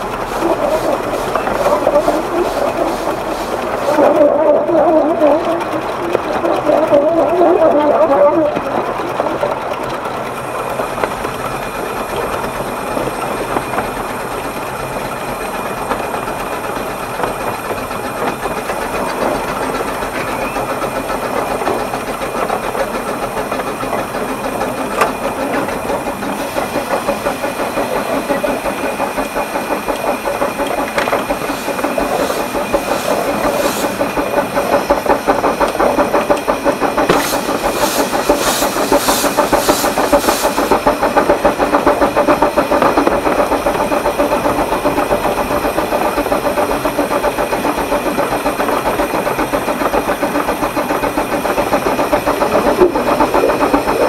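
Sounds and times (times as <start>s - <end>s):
steam hissing bursts: 0.0s - 5.6s, 24.2s - 54.0s
steam locomotive chuffing: 0.0s - 54.0s.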